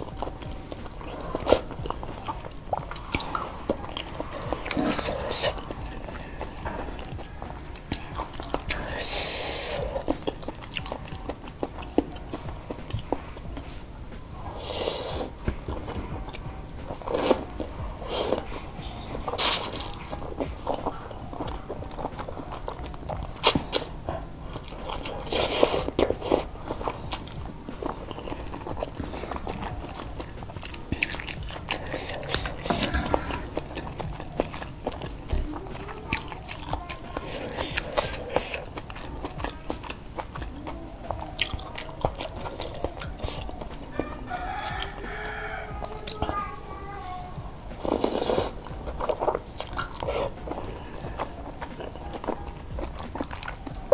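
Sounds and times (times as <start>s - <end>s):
person chewing and slurping noodles: 0.0s - 53.9s
wet mouth clicks: 19.4s - 20.0s, 23.4s - 24.0s.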